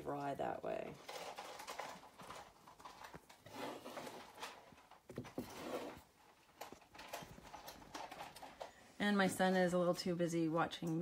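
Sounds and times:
fabric rustling: 1.0 - 8.8.

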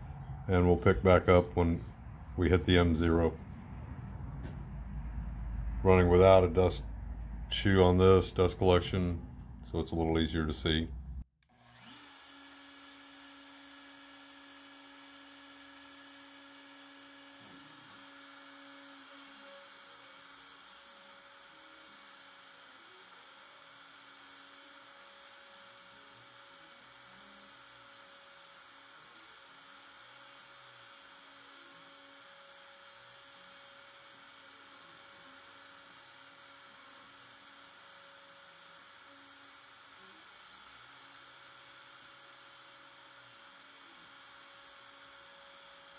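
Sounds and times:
router spindle hum: 0.0 - 45.9
stepper motor tones: 0.0 - 45.9.

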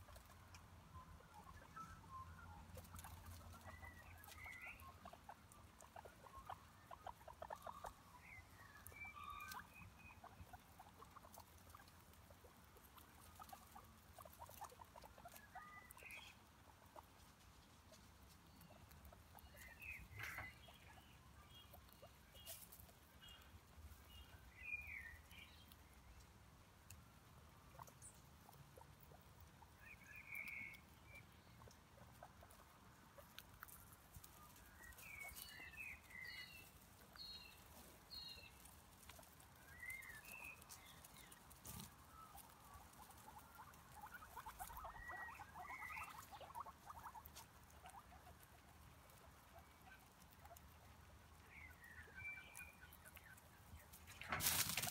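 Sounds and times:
guinea pig squeaks: 0.0 - 54.9
crackling rustle: 2.5 - 24.4, 30.7 - 54.9
rustling in dry leaves: 53.9 - 54.9.

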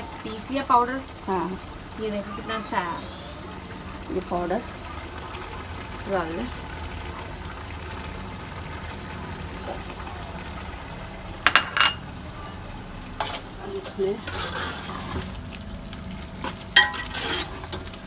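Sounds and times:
food sizzling lightly: 0.0 - 18.0
metal and crockery clinks: 11.4 - 12.0
metal spoon scraping a pot: 13.2 - 15.4, 16.4 - 18.0.

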